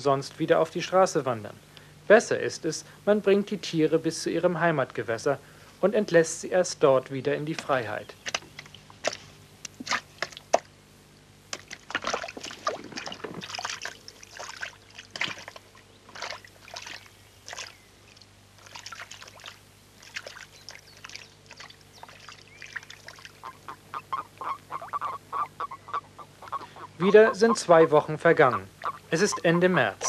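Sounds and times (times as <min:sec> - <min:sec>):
steady low hum: 0:00.0 - 0:30.0
water splashing into pond: 0:08.2 - 0:10.8, 0:11.5 - 0:25.7.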